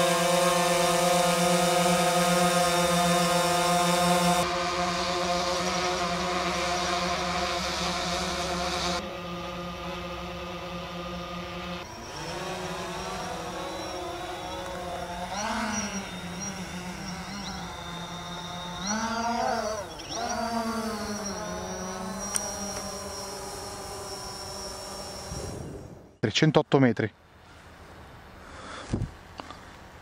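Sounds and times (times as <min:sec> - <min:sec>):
drone rotors buzzing: 0:00.0 - 0:26.2.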